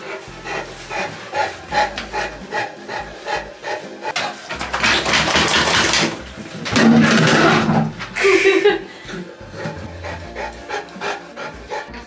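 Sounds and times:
towel rubbing wet dog fur: 0:00.0 - 0:06.4.

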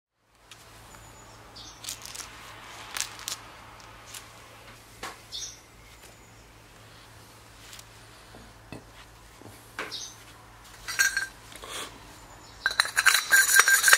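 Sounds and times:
steady low hum: 0:00.2 - 0:13.9
small metal parts clinking: 0:01.8 - 0:02.3, 0:02.9 - 0:04.2, 0:10.8 - 0:11.4, 0:12.6 - 0:13.9.

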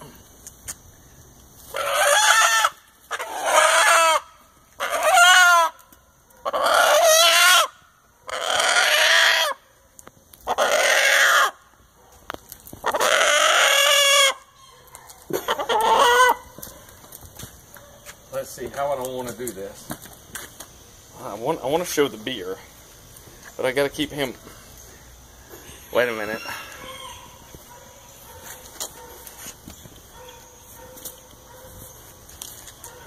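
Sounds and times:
rooster crowing: 0:26.0 - 0:27.5.

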